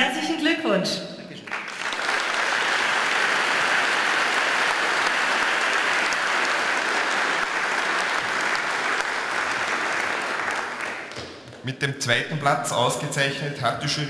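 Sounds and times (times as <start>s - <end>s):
audience applauding: 1.4s - 11.6s.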